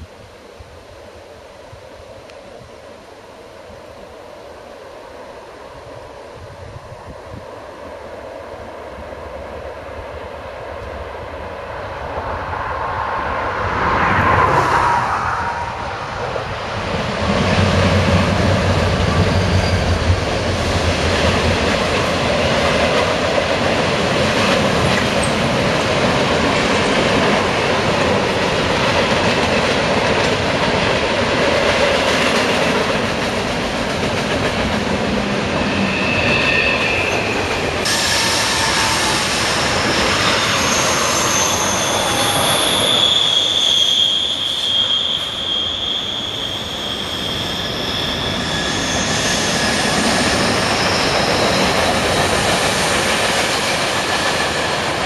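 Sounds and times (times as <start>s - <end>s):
train wheels rumbling on rails: 5.4s - 55.0s
train wheel squeal: 17.5s - 23.0s, 35.2s - 55.0s.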